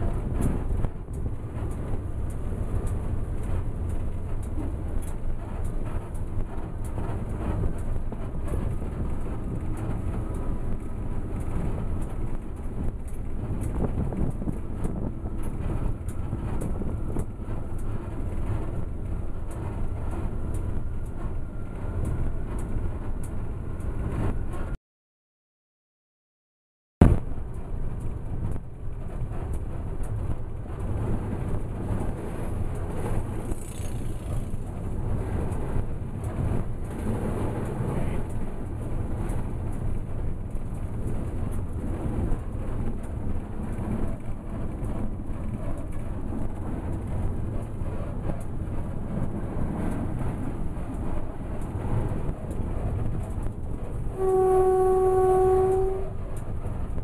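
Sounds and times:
locomotive running rumble: 0.0 - 24.8, 27.0 - 57.0
locomotive horn: 54.1 - 56.2.

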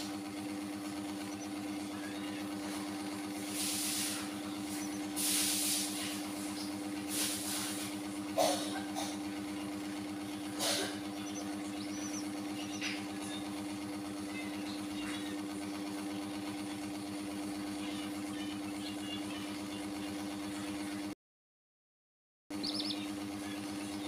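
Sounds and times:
chicks chirping: 0.0 - 8.0, 8.8 - 16.3, 22.5 - 24.0
low machine hum: 0.0 - 21.2, 22.5 - 24.0.

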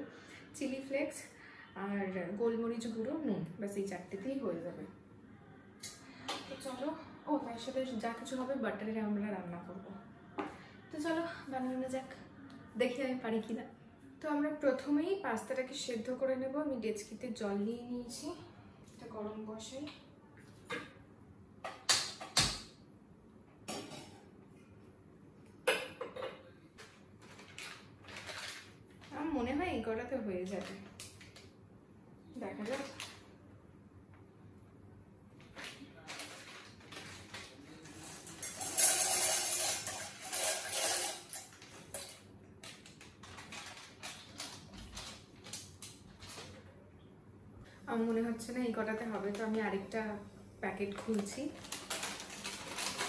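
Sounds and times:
plastic packet crinkling: 27.2 - 29.3, 32.4 - 33.2, 35.4 - 38.3, 42.6 - 46.6, 50.9 - 53.0.

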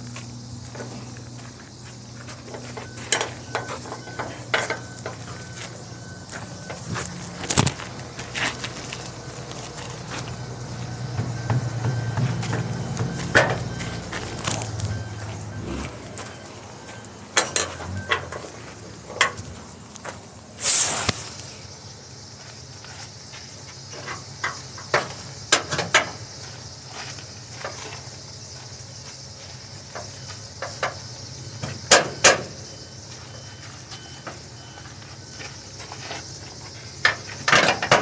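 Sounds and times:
knocks and clanks on metal deck: 2.3 - 5.7, 11.0 - 15.0, 16.1 - 19.5, 23.9 - 26.2, 29.9 - 32.7, 37.0 - 38.0
steady high hiss: 15.4 - 35.2
short scraping rush: 20.6 - 21.6.

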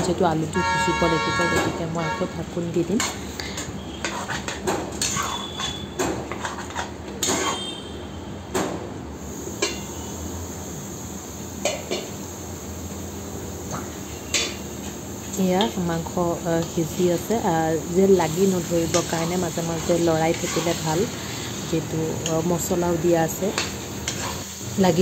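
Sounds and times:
steel ladle scraping a pan: 3.9 - 7.8, 18.9 - 22.4, 23.4 - 24.6.

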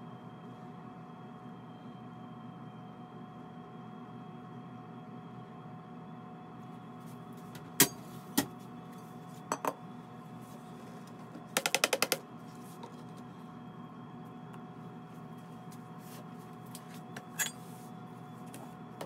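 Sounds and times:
steady room hum: 0.0 - 19.0.

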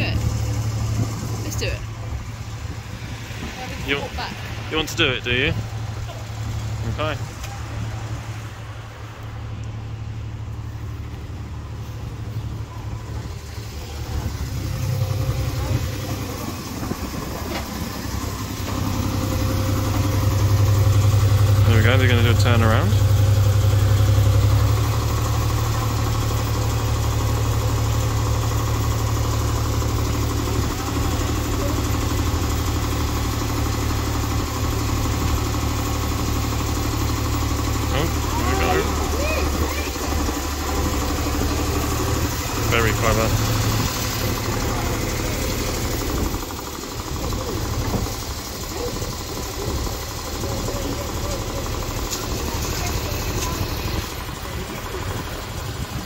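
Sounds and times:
locomotive engine idling: 0.0 - 56.0.

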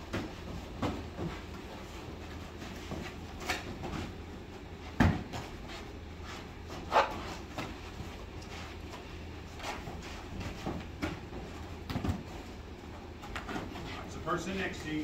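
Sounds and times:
kicks and punches on padded gear: 0.0 - 1.6, 4.9 - 5.7, 9.9 - 12.4
steady low hum: 0.0 - 15.0.

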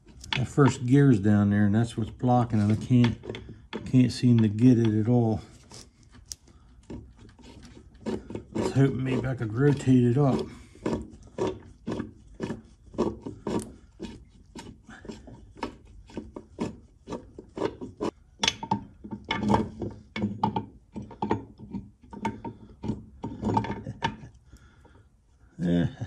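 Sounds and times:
steel gears clunking and scraping: 0.0 - 5.6.

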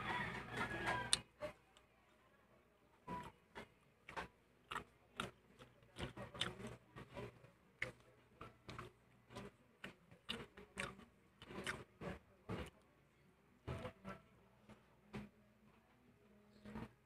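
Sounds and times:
mouth chewing: 3.1 - 12.8.

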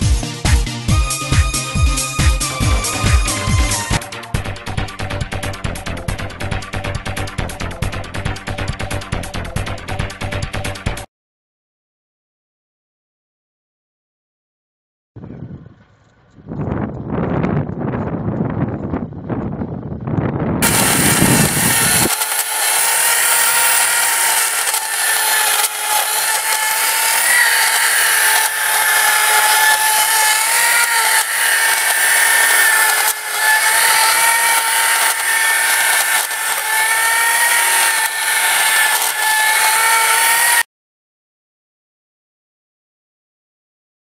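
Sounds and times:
angle grinder whining: 0.0 - 9.0, 20.6 - 40.7
wind noise on microphone: 15.2 - 22.2.

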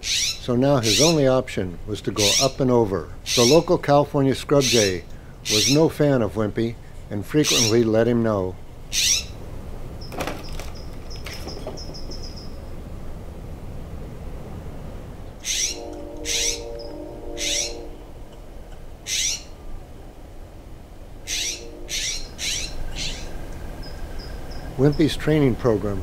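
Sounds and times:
jay harsh calls: 3.3 - 3.7, 4.6 - 5.9, 15.4 - 18.2, 19.0 - 19.6, 21.2 - 24.8.

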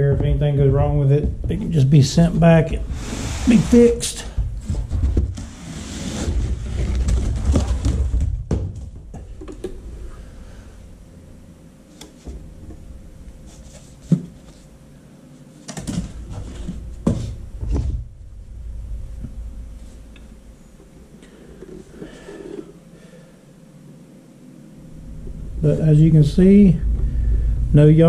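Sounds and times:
knocks and thumps on floor: 0.0 - 3.0, 4.2 - 5.5, 6.3 - 9.8
foam packing scraping cardboard: 1.7 - 8.1.

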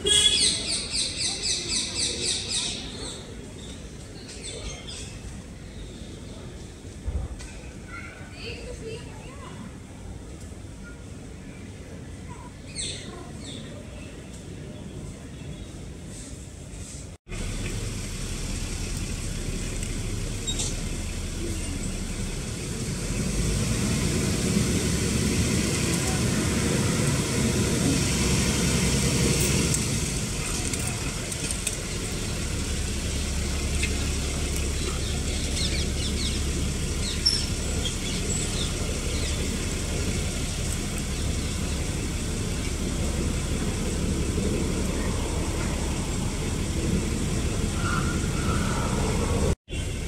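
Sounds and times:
low outdoor rumble: 16.6 - 50.0
high bird chirps: 33.1 - 39.6.

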